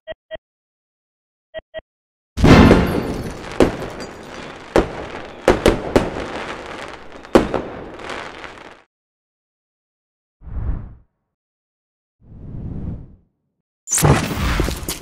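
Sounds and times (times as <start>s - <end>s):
fireworks bangs and crackling: 2.4s - 8.9s.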